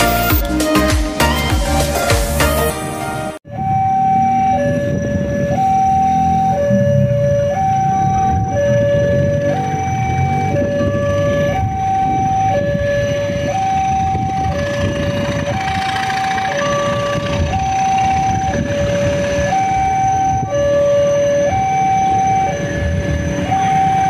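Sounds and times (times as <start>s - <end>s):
level-crossing alarm tones: 2.9s - 24.0s
diesel locomotive rumble: 7.8s - 21.0s.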